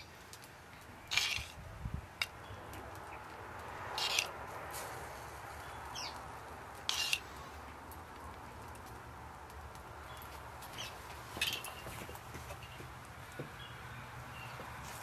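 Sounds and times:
sharp scraping sounds: 1.0s - 1.6s, 3.8s - 6.1s, 6.8s - 7.6s
bird chirps: 5.6s - 6.2s.

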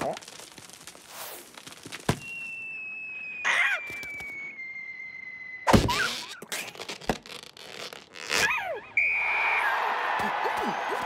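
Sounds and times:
whistle sliding down in pitch: 2.2s - 6.4s.

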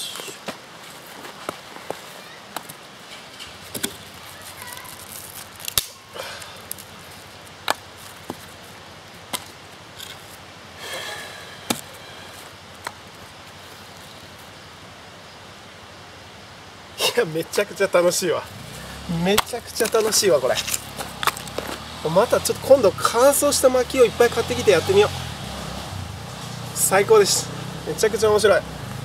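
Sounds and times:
hatchet chopping wood: 11.7s - 11.9s, 19.1s - 21.9s
wood scraping: 18.5s - 25.3s.

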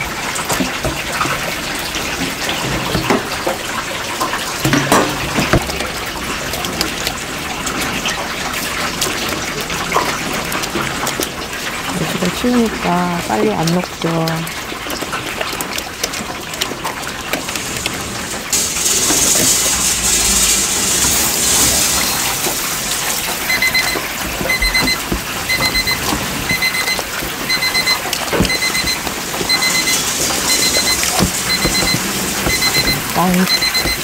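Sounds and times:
electronic alarm beeps: 23.4s - 34.0s.

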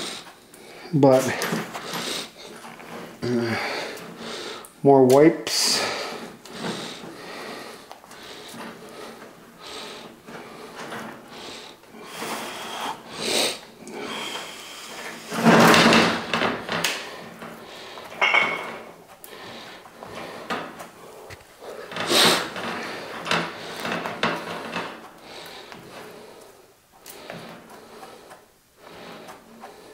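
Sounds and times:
drain snake cable clattering: 1.0s - 4.3s, 13.9s - 26.2s.

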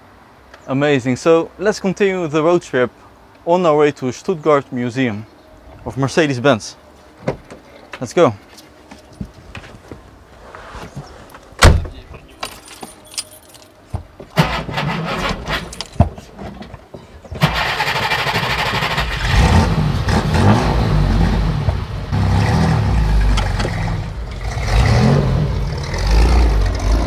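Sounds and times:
car door shutting: 11.6s - 12.1s
car engine starting and revving: 17.4s - 27.0s.

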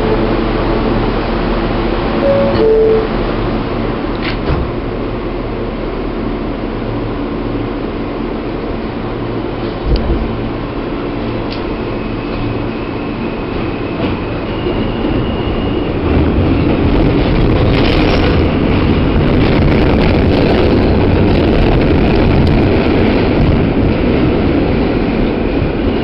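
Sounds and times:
subway train wheels rumbling: 0.0s - 26.0s
thin high tone rising: 2.2s - 3.2s.

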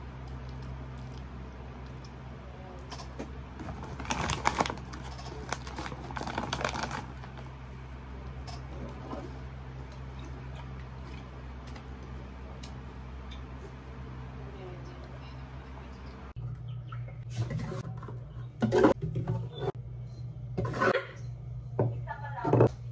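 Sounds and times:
steady low hum: 0.0s - 22.9s
plastic snack bag crinkling: 3.6s - 7.8s.

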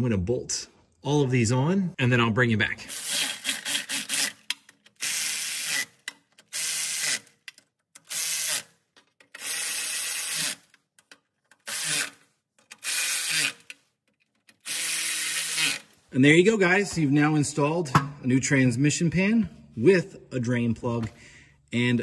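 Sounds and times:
electric ratchet spinning bolts: 2.9s - 10.8s, 11.5s - 13.8s, 14.5s - 15.9s.

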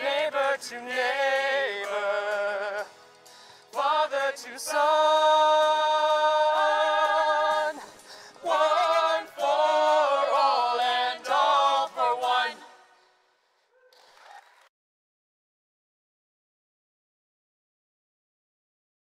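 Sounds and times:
mixed voices singing together: 0.0s - 2.9s, 3.7s - 13.0s.

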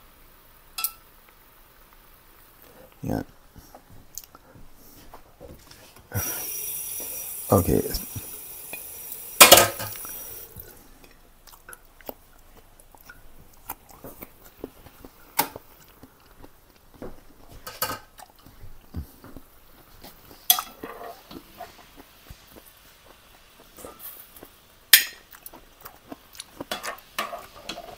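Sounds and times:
metal utensils clanking on a pan: 0.8s - 1.0s, 8.7s - 10.1s, 20.5s - 21.4s, 24.9s - 25.2s, 26.7s - 27.9s
food simmering: 5.0s - 27.9s.

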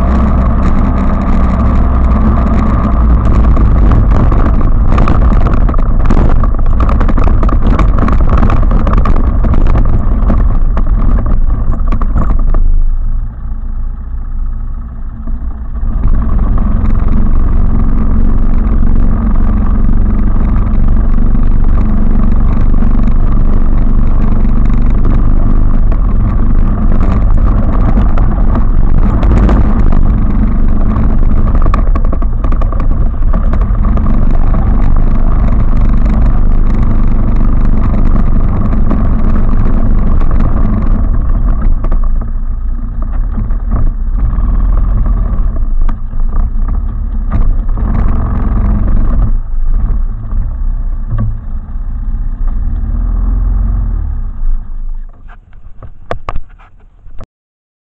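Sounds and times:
quad engine running: 0.0s - 57.2s
scattered knocks: 0.1s - 12.6s, 16.0s - 42.4s.

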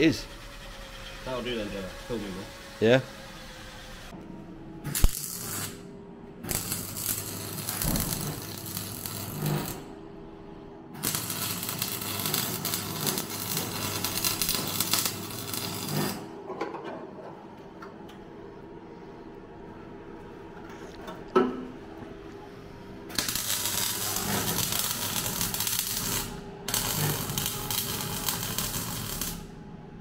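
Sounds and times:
welder crackling: 4.9s - 5.8s, 6.5s - 9.9s, 11.0s - 16.3s, 23.1s - 29.5s.

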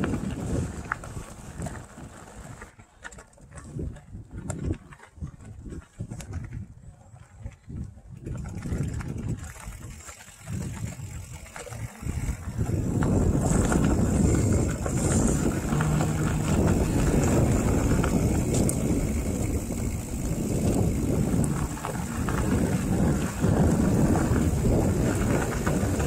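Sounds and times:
wind rushing over microphone: 0.0s - 2.7s, 3.6s - 26.0s
bike tyres rumbling on gravel: 0.0s - 26.0s.

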